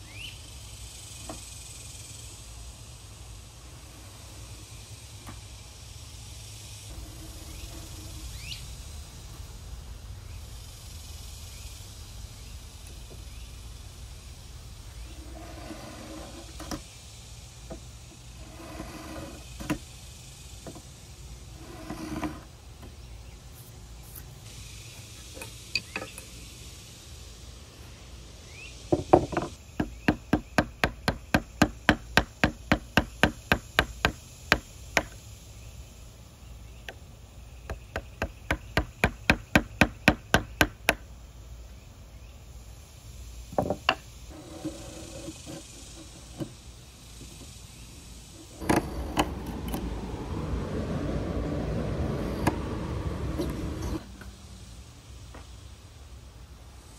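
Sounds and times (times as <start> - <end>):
wood scraping: 15.1 - 16.8, 17.7 - 19.8, 21.5 - 22.5, 43.6 - 46.6.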